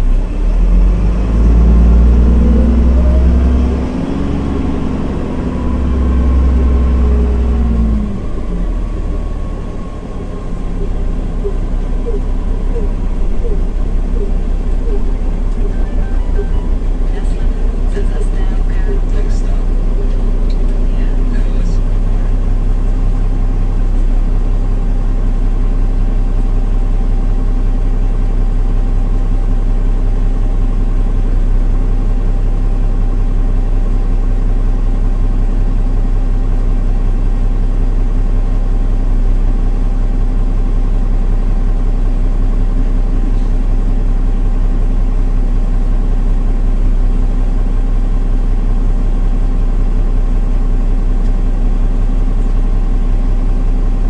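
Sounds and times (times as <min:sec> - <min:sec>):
bus engine humming: 0:00.0 - 0:28.8.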